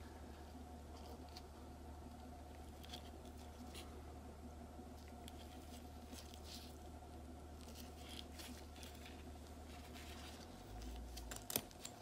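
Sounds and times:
low steady hum: 0.0 - 12.0
rustling and scraping of steel parts: 7.6 - 12.0.

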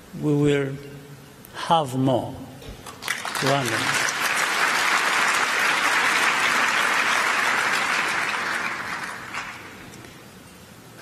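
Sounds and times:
large audience applauding: 3.0 - 10.0.

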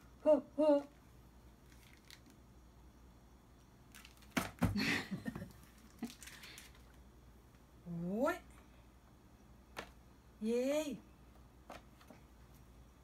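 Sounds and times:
objects clicking and rustling: 5.5 - 7.0.

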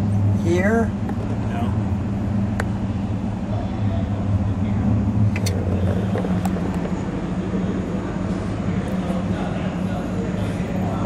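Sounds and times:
steady low hum: 0.0 - 11.0
faint distant voices: 2.8 - 11.0.

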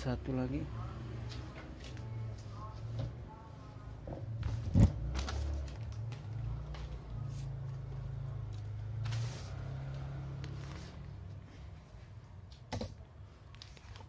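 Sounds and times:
newspaper crinkling: 13.5 - 14.0.

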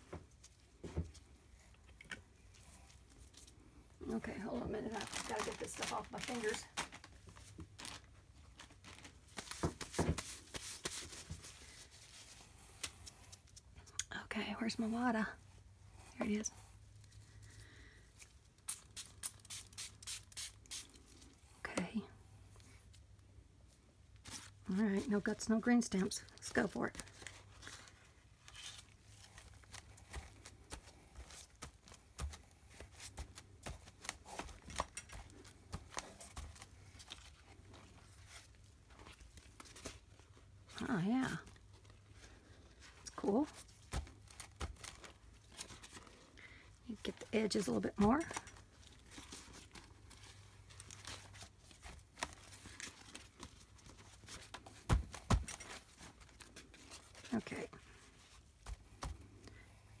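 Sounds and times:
paper crinkling: 2.9 - 13.8, 26.2 - 40.6, 41.3 - 59.1.

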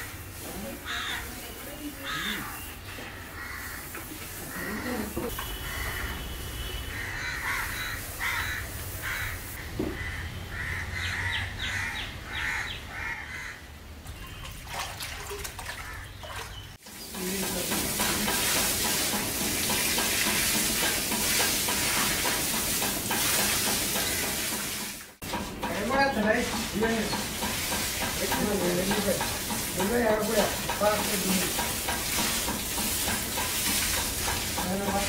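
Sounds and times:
crows cawing: 0.8 - 1.4, 2.0 - 2.6, 3.2 - 6.3, 6.9 - 13.7
water splashing onto grain: 14.1 - 25.0, 26.2 - 35.0.

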